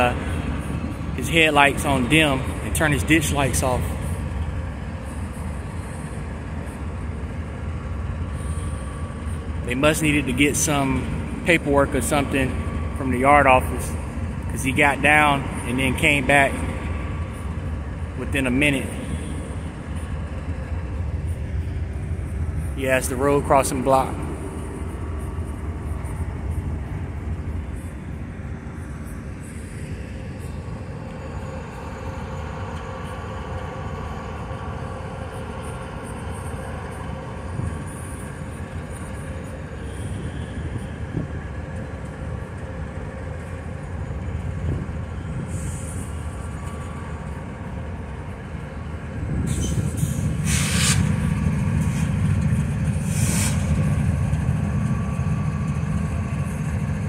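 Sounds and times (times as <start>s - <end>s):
locomotive engines idling: 0.0s - 57.0s
short hisses: 50.4s - 51.1s, 53.0s - 53.7s.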